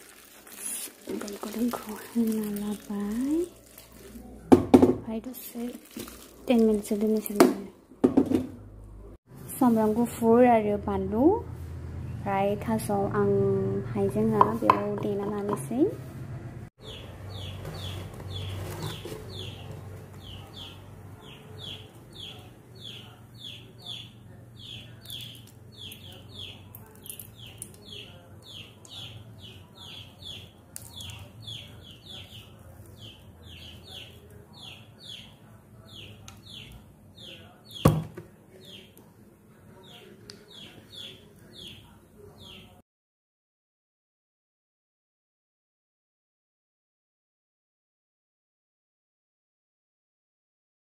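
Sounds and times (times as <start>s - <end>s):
bird chirping: 16.8s - 39.0s.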